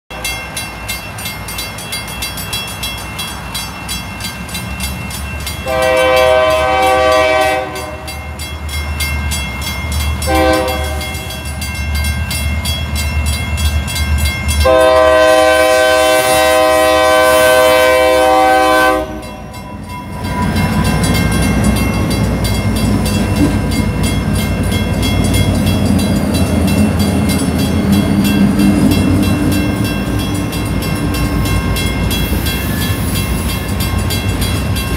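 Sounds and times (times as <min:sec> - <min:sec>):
crossing bells ringing: 0:00.1 - 0:34.9
locomotive engines rumbling: 0:00.1 - 0:34.9
train wheels clattering on rails: 0:00.1 - 0:34.9
locomotive air horn blasts: 0:05.6 - 0:08.2, 0:10.3 - 0:11.3, 0:14.6 - 0:19.5.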